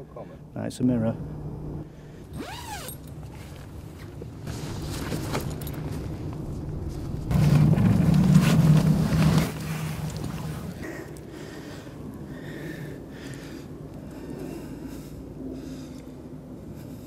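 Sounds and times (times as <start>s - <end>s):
steady low hum: 0.0s - 17.0s
rustling and gear handling: 2.4s - 11.3s.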